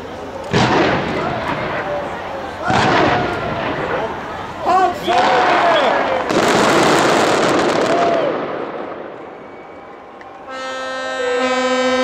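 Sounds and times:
fireworks: 0.4 - 9.5
ship's horns sounding: 10.4 - 12.0.

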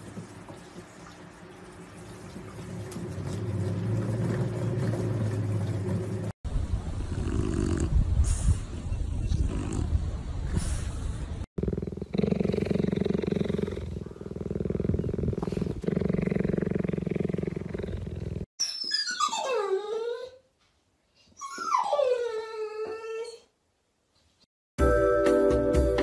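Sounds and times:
cheetah purring: 7.1 - 8.1, 11.6 - 18.5
dog whining howls: 18.8 - 20.4.

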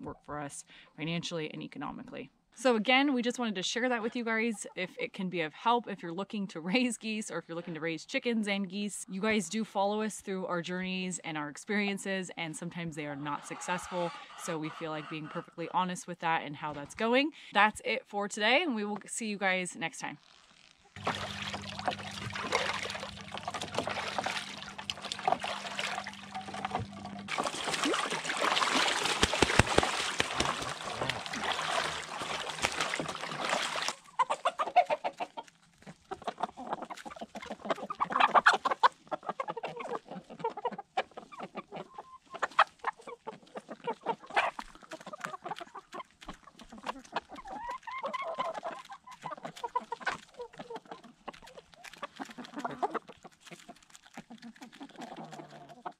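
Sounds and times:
hens clucking softly: 13.0 - 15.6, 21.1 - 55.9
goose splashing in water: 21.0 - 35.2
quick pecking ticks: 28.9 - 31.4, 43.5 - 55.9.

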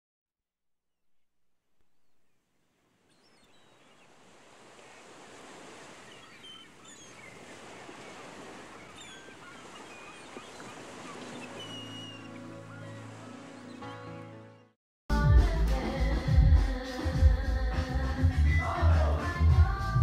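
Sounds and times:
birds chirping: 2.0 - 14.7
ocean surf washing: 2.8 - 14.2
music: 12.2 - 20.0.

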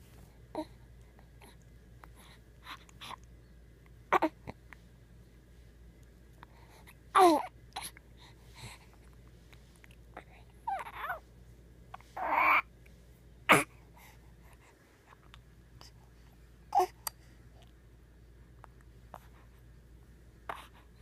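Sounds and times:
baby cooing and grunting: 4.1 - 4.6, 7.1 - 7.9, 10.6 - 11.2, 12.2 - 12.7, 13.5 - 13.8, 16.7 - 17.0.

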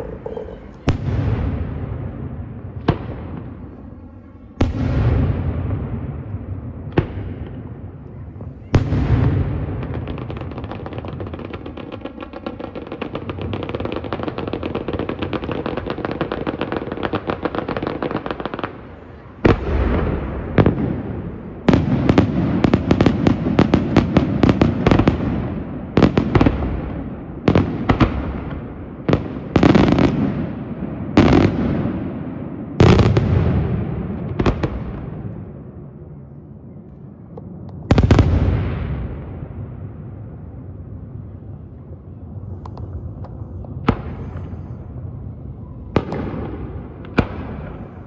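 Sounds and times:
fireworks crackling: 0.0 - 3.9.

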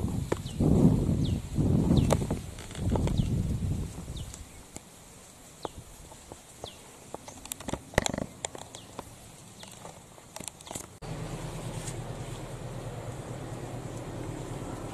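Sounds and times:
small clicks and rustles: 2.0 - 11.0.

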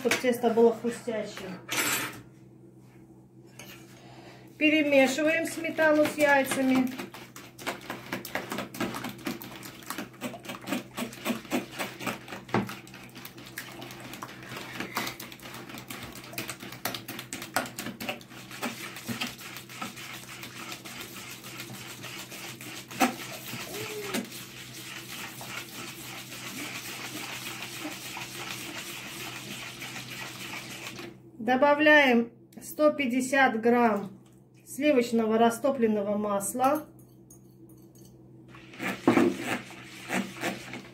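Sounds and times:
wet swishing of mixture: 5.3 - 31.2, 38.5 - 40.9
whisk clicking against bowl: 5.8 - 13.3.

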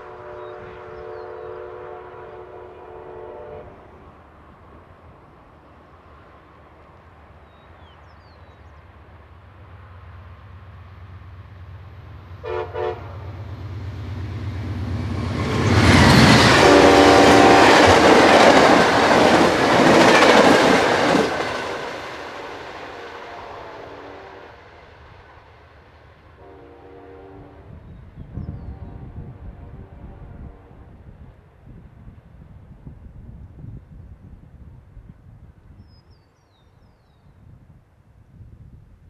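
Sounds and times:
train horn: 0.0 - 4.2, 12.4 - 13.5, 15.5 - 18.8, 21.1 - 24.8, 26.3 - 31.2
train wheels rushing and rattling: 13.6 - 22.9.

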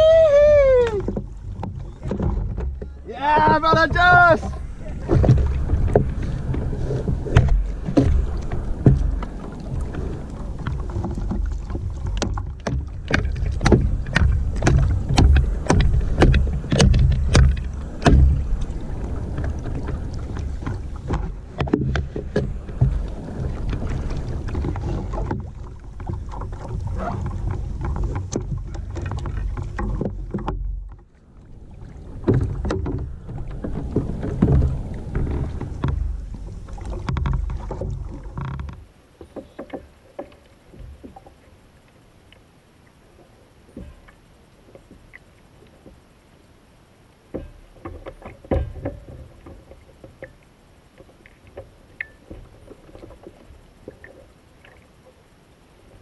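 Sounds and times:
water sloshing against hull: 0.0 - 56.0
sharp clicks and knocks: 10.6 - 18.4.

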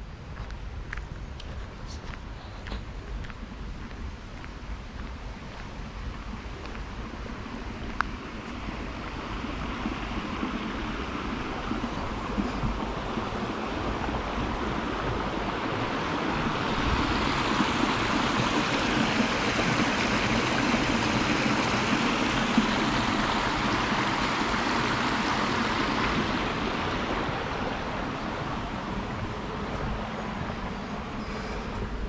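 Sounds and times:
stream cascading over rocks: 5.5 - 32.0.

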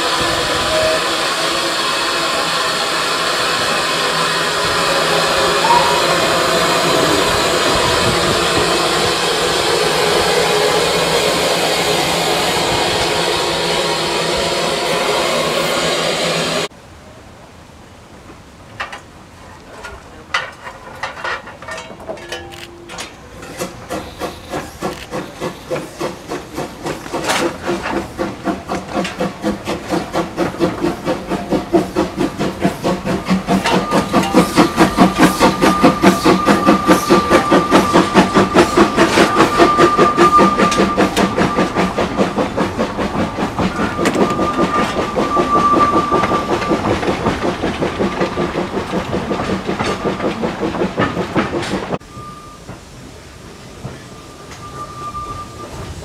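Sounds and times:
steam hissing: 0.0 - 16.7, 23.5 - 56.0
steam locomotive exhaust chuffs: 0.0 - 16.7, 23.2 - 56.0
high whistle-like tone: 5.5 - 7.2, 33.6 - 42.1, 43.6 - 47.2, 52.0 - 52.8, 54.0 - 56.0.

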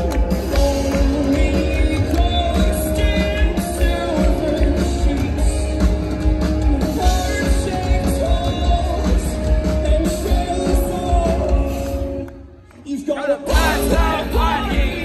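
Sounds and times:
live rock band playing: 0.0 - 12.6, 13.5 - 15.0
person singing: 0.3 - 12.1.

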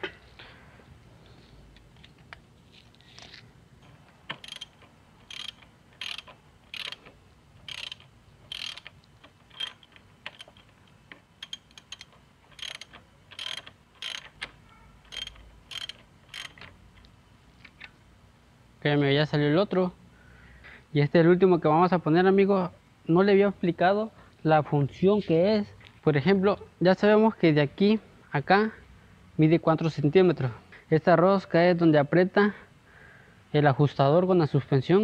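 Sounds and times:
ratchet wrench clicking: 4.3 - 16.8.

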